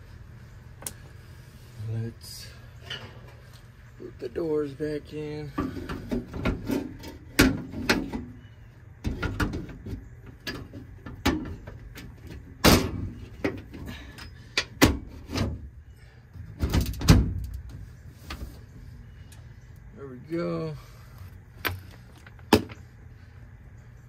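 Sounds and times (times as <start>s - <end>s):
metal panel knocking and banging: 5.6s - 8.3s, 9.0s - 13.8s.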